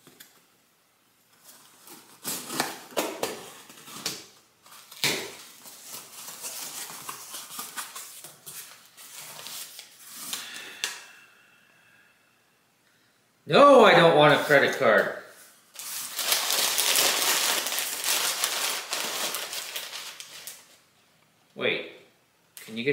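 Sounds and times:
packaging rustling and crinkling: 0:01.3 - 0:10.5, 0:15.7 - 0:20.8.

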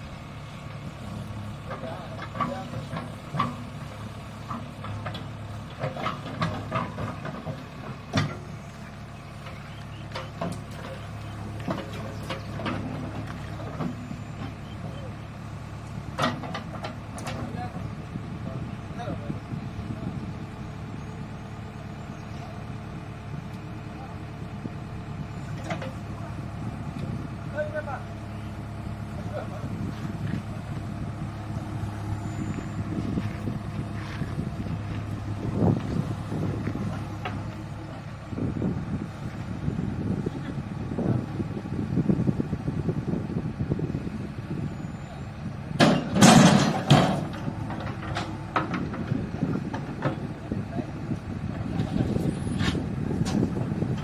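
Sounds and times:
diesel engine idling: 0:00.0 - 0:54.0
logs thudding into steel trolley: 0:45.8 - 0:50.2.

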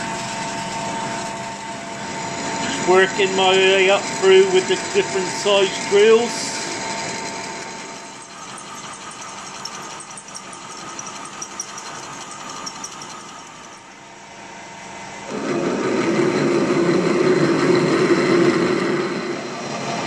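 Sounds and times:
lathe drilling metal: 0:01.1 - 0:14.1.

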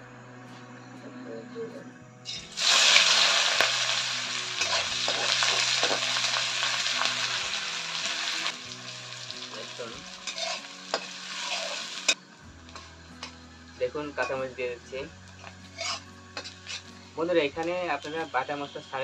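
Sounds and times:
onion sizzling in hot oil: 0:02.3 - 0:12.9, 0:15.4 - 0:16.9
metal spatula scraping pan: 0:10.2 - 0:12.1, 0:15.7 - 0:16.9.

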